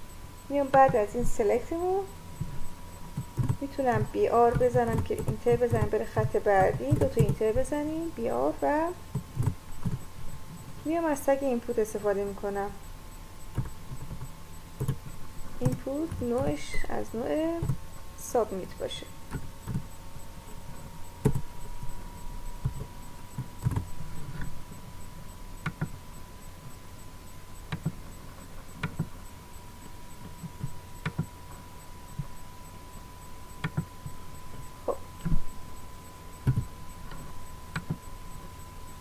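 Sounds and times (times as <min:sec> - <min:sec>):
faint high whine: 0:00.0 - 0:39.0
low electrical hum: 0:00.0 - 0:39.0
keyboard and mouse clicks: 0:03.2 - 0:07.7, 0:13.5 - 0:16.9, 0:21.2 - 0:22.0, 0:22.6 - 0:24.5, 0:25.6 - 0:26.0, 0:27.7 - 0:28.0, 0:28.8 - 0:29.1, 0:30.3 - 0:31.3, 0:33.6 - 0:35.5, 0:36.4 - 0:38.0.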